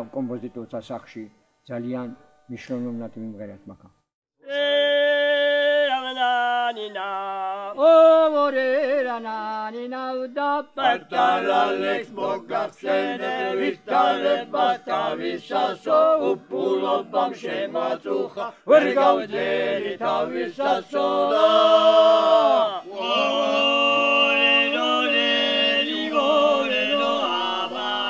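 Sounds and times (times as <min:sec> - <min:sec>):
men singing unaccompanied: 0:04.4 - 0:28.0.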